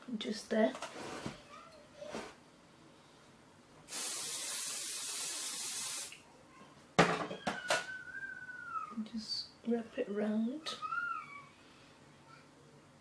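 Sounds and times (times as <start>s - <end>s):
aerosol spray hiss: 3.9s - 6.2s.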